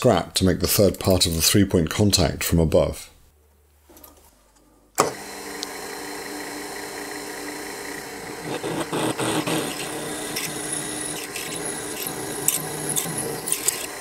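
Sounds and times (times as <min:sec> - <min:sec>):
drill cutting into metal: 0:05.0 - 0:14.0
milling machine motor whine: 0:05.1 - 0:14.0
metal chips clicking: 0:11.2 - 0:14.0.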